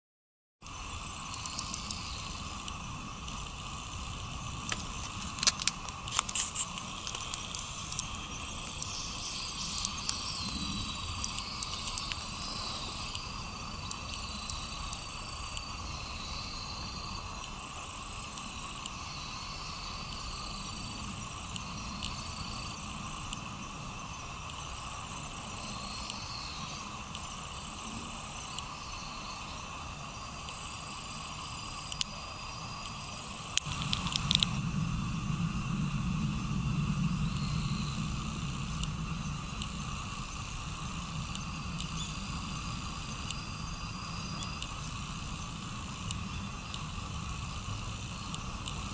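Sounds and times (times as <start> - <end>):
sharp clicks: 0.6 - 3.6, 4.6 - 15.8, 31.9 - 32.2, 32.8 - 34.6
high-pitched hum: 0.6 - 48.9.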